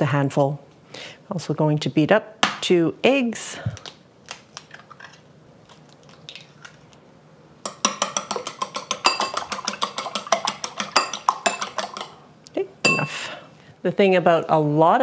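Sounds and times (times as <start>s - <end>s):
eggs beaten in a bowl: 7.6s - 13.2s.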